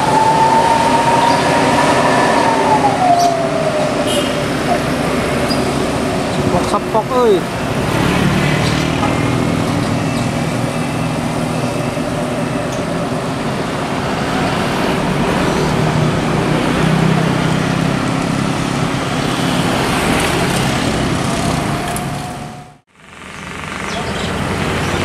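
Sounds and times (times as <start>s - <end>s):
bus engine hum: 0.0s - 25.0s
motorcycle engines: 0.0s - 25.0s.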